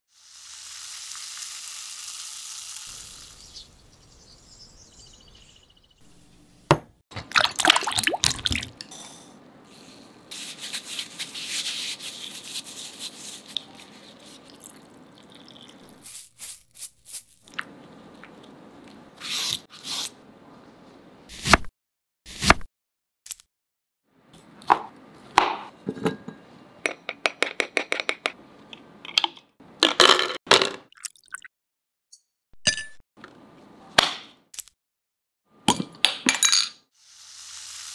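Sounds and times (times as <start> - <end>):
carbonated water fizzing: 0.1 - 3.5
lemon being scrubbed: 10.3 - 14.7.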